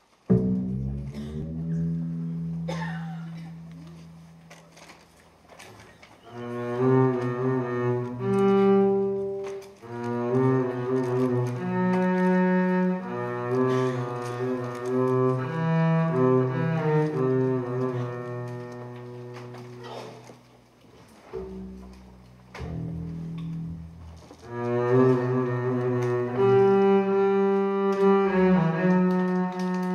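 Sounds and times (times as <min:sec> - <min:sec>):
bowed upright bass: 0:00.0 - 0:29.9.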